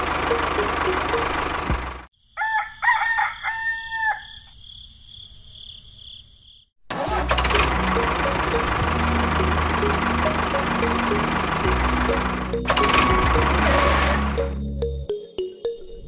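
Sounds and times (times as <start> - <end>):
engine running: 0.0 - 2.1, 6.9 - 15.1
music: 0.2 - 1.8, 7.0 - 16.0
rooster crowing: 2.3 - 4.5.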